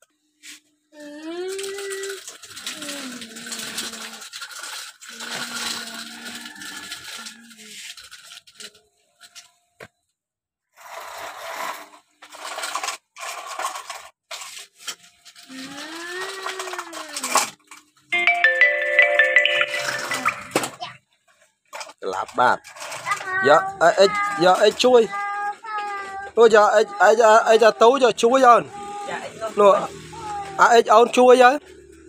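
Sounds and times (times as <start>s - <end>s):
toy truck scraping over sand: 1.6s - 8.7s, 10.7s - 17.6s, 21.8s - 26.3s.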